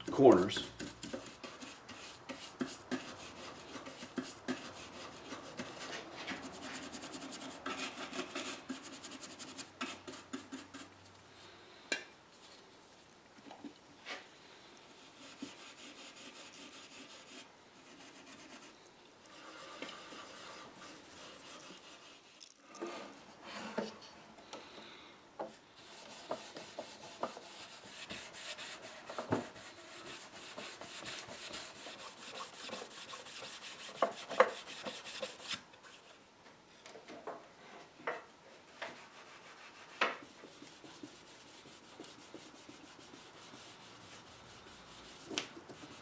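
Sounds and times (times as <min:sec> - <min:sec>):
scratchy scrubbing on wood: 0:00.6 - 0:10.9, 0:15.0 - 0:18.7, 0:19.3 - 0:23.7, 0:25.8 - 0:36.1, 0:38.7 - 0:46.0.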